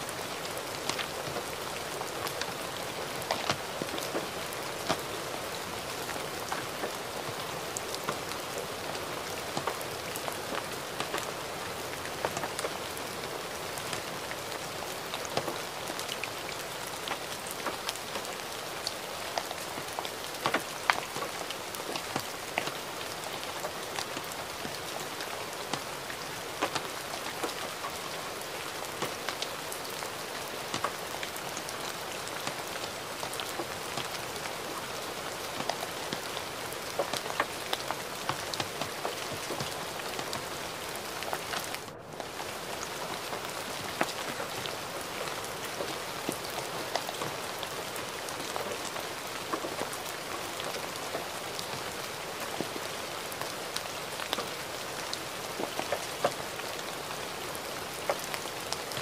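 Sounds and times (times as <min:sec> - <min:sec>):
gentle rain hissing: 0:00.0 - 0:59.0
raindrops pattering: 0:00.0 - 0:59.0.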